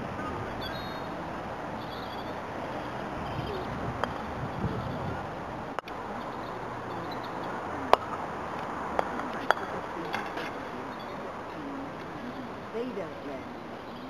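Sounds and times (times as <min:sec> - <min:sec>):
outdoor background noise: 0:00.0 - 0:14.0
croquet balls clacking: 0:04.0 - 0:04.3, 0:07.0 - 0:10.6.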